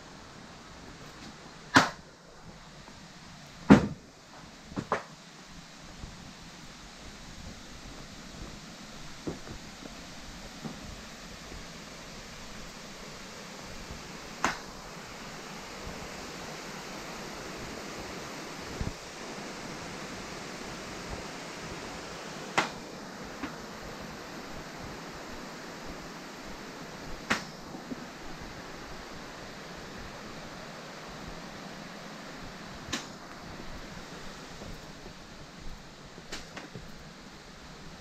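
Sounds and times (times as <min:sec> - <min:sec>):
flowing water rushing: 0:05.8 - 0:38.0.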